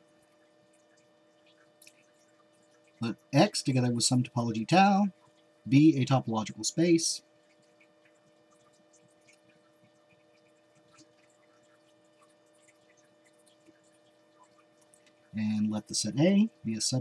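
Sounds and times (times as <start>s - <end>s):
faint electrical hum: 0.0s - 17.0s.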